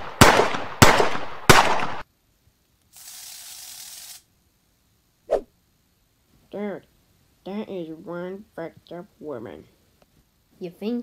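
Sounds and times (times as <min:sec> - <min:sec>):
gunshot bang: 0:00.0 - 0:02.0
steady hiss: 0:00.0 - 0:11.0.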